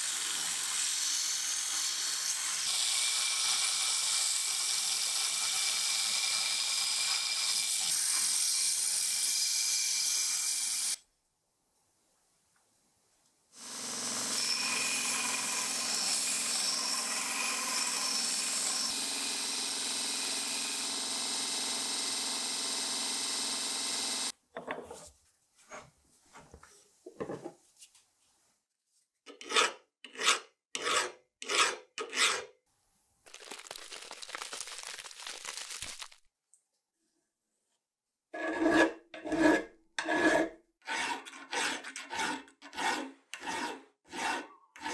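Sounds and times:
belt grinder grinding metal: 0:00.0 - 0:11.0, 0:13.6 - 0:24.3
hand file rasping metal: 0:29.3 - 0:32.5, 0:38.4 - 0:44.9.

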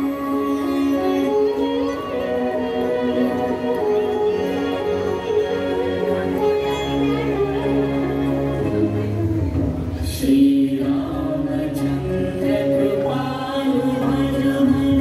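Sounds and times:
chant-like singing: 0:10.0 - 0:15.0.

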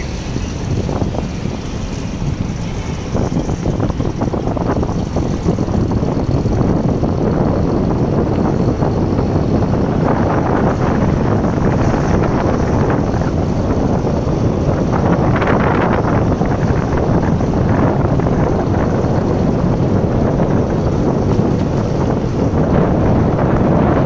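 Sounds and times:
tyre and engine noise: 0:00.0 - 0:24.0
wind rushing across microphone: 0:00.0 - 0:24.0.

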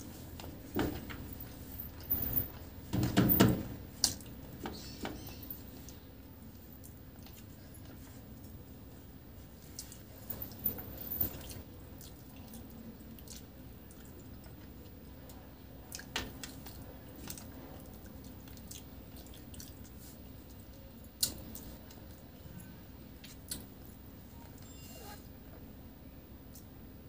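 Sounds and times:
chewing: 0:15.9 - 0:22.2.

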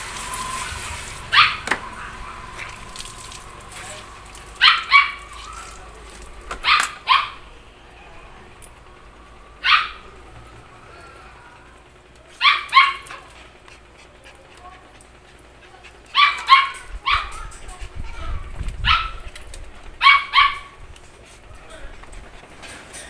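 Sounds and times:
small dog yapping: 0:01.3 - 0:02.2, 0:04.6 - 0:05.9, 0:06.6 - 0:07.4, 0:09.6 - 0:10.1, 0:12.3 - 0:13.3, 0:16.1 - 0:17.6, 0:18.8 - 0:19.3, 0:20.0 - 0:20.8.

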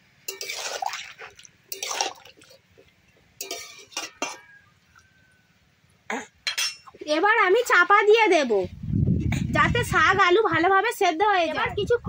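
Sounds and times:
metal spatula scraping wok: 0:00.3 - 0:00.8, 0:03.4 - 0:04.6.

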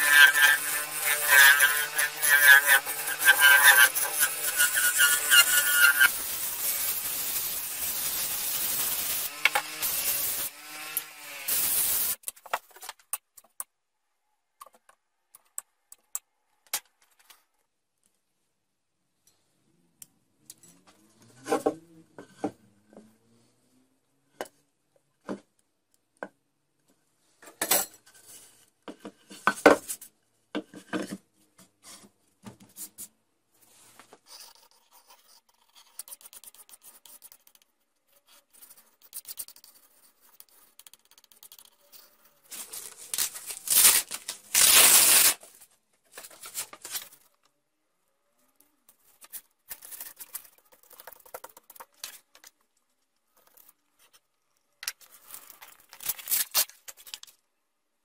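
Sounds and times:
loud harsh rasping: 0:00.0 - 0:11.5
scraping and rubbing of fabric: 0:38.1 - 0:47.2.

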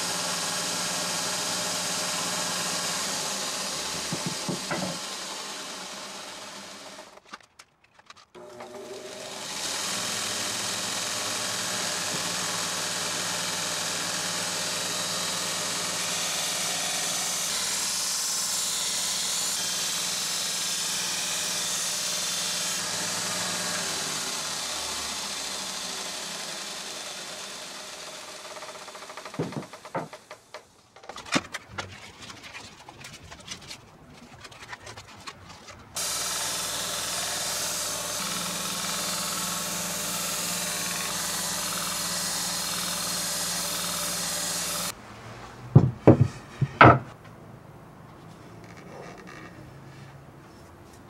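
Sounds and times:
belt grinder grinding steel: 0:08.3 - 0:30.4, 0:34.4 - 0:45.0
knocks and clicks: 0:29.3 - 0:32.0.

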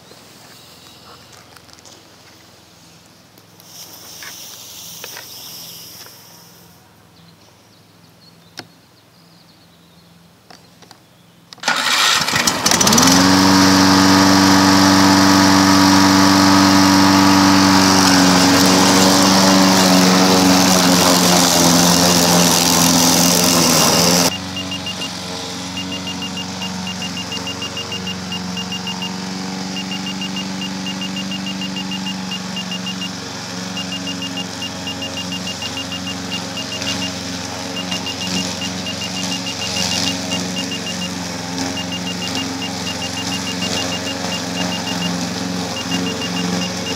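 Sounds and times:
lawn mower engine running: 0:11.5 - 0:46.9
fast high peeping: 0:14.8 - 0:46.9.

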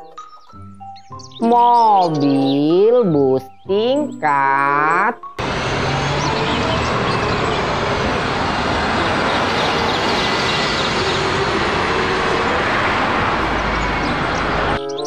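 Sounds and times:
general traffic: 0:01.8 - 0:15.0
bus driving past: 0:05.4 - 0:15.0.

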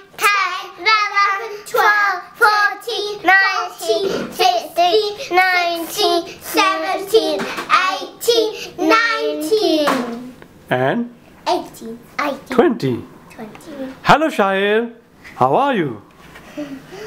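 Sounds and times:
girl counting in sing-song chant: 0:00.0 - 0:10.4.

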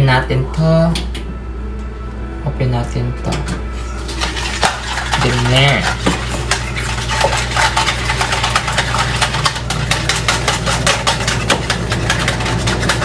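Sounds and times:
low hum: 0:00.0 - 0:13.0
eggs beaten in plastic bowl: 0:04.0 - 0:13.0.

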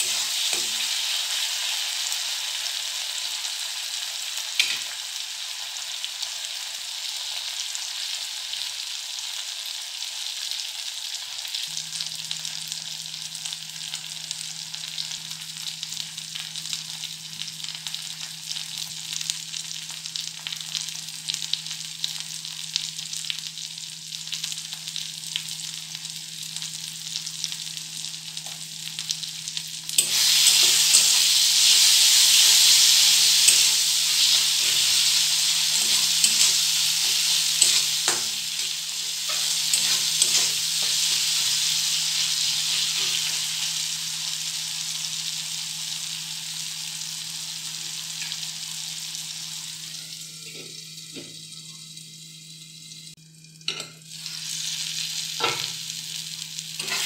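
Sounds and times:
masala sizzling in hot oil: 0:00.0 - 0:57.0
metal spatula scraping pan: 0:33.4 - 0:41.5, 0:56.8 - 0:57.0.

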